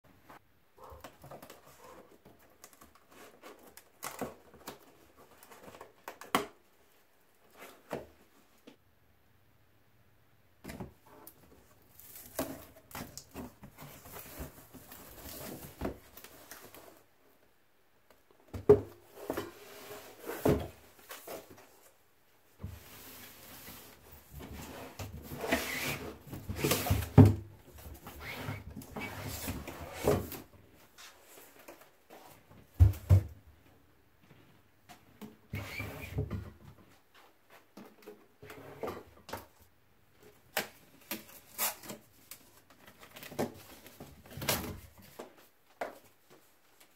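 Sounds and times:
cardboard rustling and scraping: 11.8s - 17.1s, 18.7s - 21.9s, 22.6s - 33.2s.

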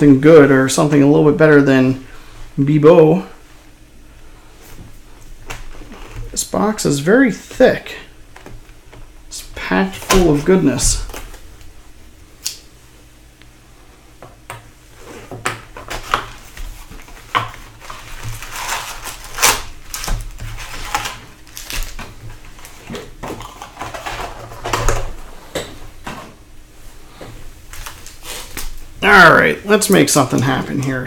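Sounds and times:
wrappers crinkling: 15.9s - 24.5s, 27.7s - 30.8s.

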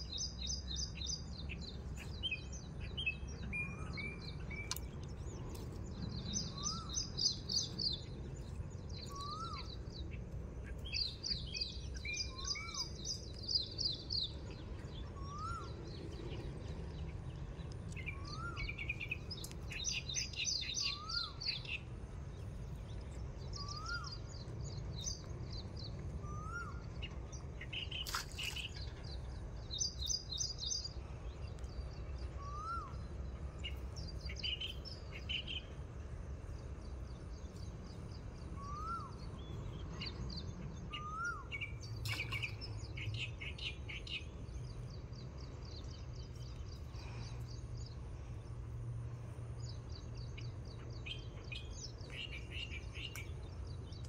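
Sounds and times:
steady low rumble: 0.0s - 54.0s.

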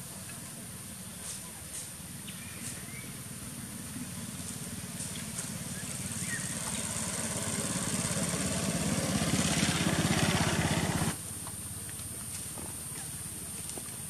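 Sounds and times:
small engine running: 3.1s - 11.2s.

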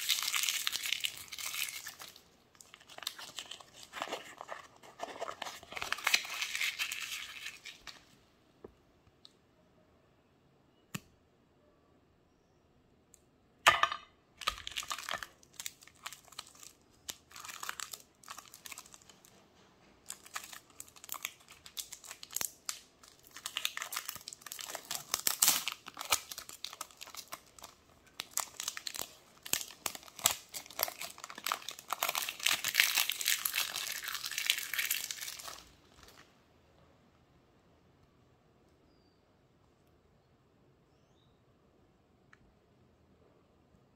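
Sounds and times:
chocolate wrapper crinkling and tearing: 0.0s - 8.1s, 14.4s - 19.4s, 20.0s - 36.3s.

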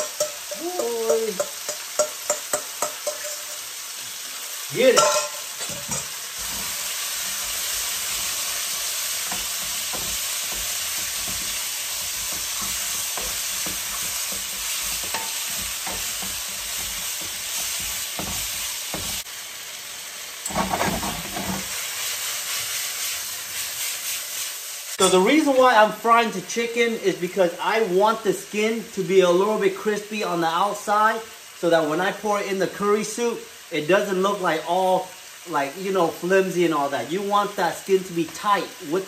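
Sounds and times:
spatula knocking pan: 0.0s - 3.6s, 4.9s - 6.7s, 7.3s - 19.3s
pan clattering on burner: 0.0s - 3.7s, 4.9s - 19.2s, 20.4s - 21.8s
chicken sizzling in oil: 0.0s - 39.0s.

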